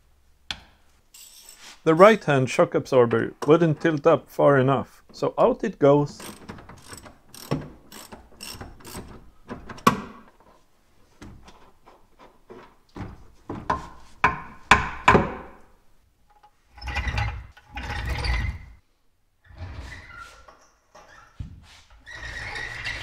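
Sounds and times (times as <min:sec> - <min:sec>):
ratchet wrench clicking: 0:01.2 - 0:01.6, 0:06.2 - 0:09.1.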